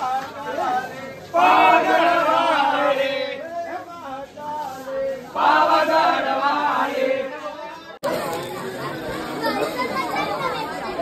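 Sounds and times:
men chanting in unison: 0:00.0 - 0:07.6
crowd chatter: 0:00.0 - 0:11.0.

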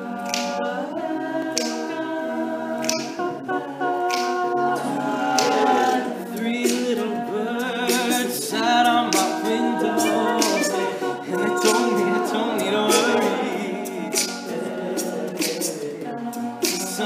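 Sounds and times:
male group singing in harmony: 0:00.0 - 0:17.0
sharp percussive hits: 0:09.1 - 0:12.0.

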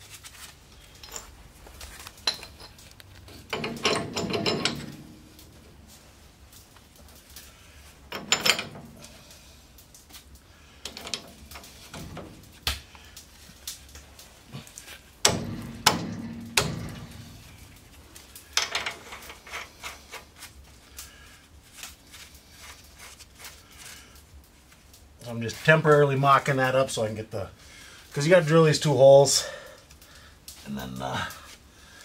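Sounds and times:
metal clanks and knocks: 0:02.1 - 0:05.7, 0:08.0 - 0:09.3, 0:10.8 - 0:12.9, 0:14.1 - 0:20.2.

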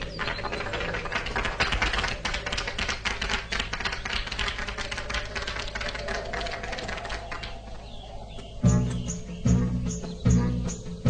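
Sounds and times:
small crowd applauding: 0:00.0 - 0:08.0.

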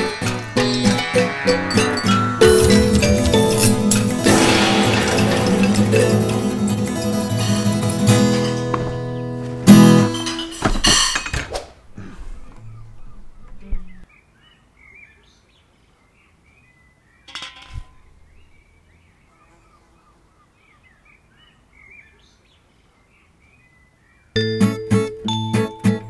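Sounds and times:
short noisy burst: 0:02.4 - 0:07.9
loud knocks and crashes: 0:02.4 - 0:11.5
faint birdsong: 0:12.0 - 0:25.1.

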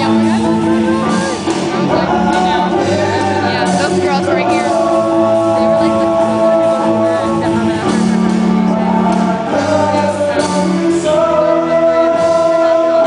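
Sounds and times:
live rock band playing: 0:00.0 - 0:13.0
person singing: 0:00.0 - 0:13.0.

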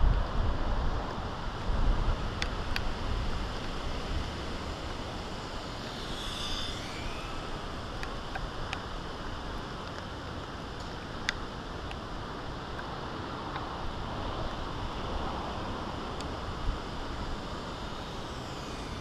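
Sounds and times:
wind blowing over microphone: 0:00.0 - 0:19.0
sharp ticks: 0:05.8 - 0:08.9.

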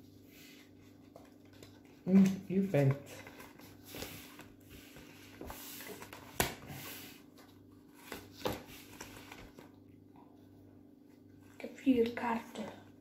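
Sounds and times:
cards rustling: 0:00.9 - 0:09.8.

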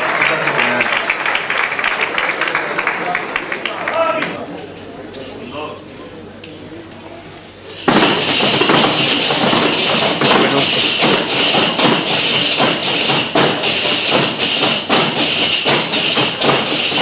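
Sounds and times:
tambourines playing rhythm: 0:07.6 - 0:17.0.

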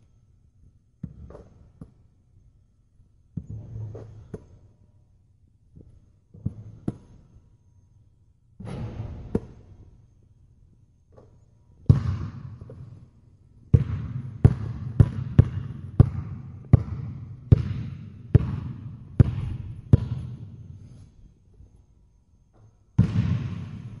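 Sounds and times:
basketball bouncing on hard floor: 0:01.0 - 0:01.9, 0:11.9 - 0:12.9, 0:13.7 - 0:20.4, 0:23.0 - 0:23.9
thump: 0:08.6 - 0:09.6.

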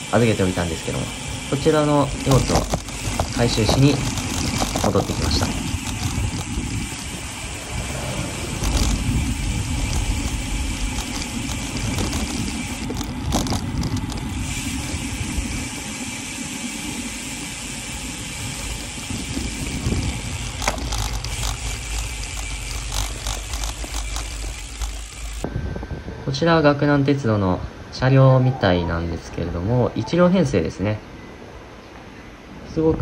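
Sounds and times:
bike clicks and rattles: 0:00.0 - 0:25.5
tyres on asphalt: 0:00.0 - 0:25.5
wind rumble on microphone: 0:02.0 - 0:16.1, 0:16.8 - 0:27.9.

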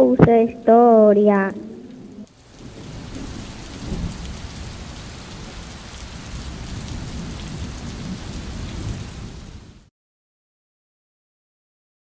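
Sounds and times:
thunder rumbling: 0:01.3 - 0:09.9
steady rain: 0:01.8 - 0:09.9.

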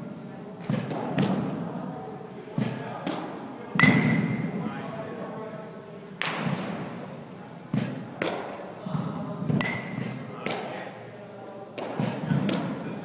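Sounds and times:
balls hit and landing: 0:00.6 - 0:01.7, 0:02.5 - 0:04.6, 0:06.2 - 0:07.0, 0:07.7 - 0:11.0, 0:11.8 - 0:12.9
bat striking ball: 0:03.8 - 0:04.4, 0:09.6 - 0:10.7.

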